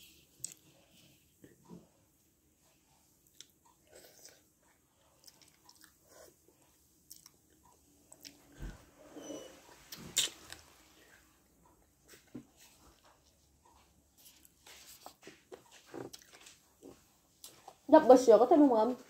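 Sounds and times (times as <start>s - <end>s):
person chewing: 3.2s - 8.5s, 9.9s - 11.0s, 14.2s - 17.8s.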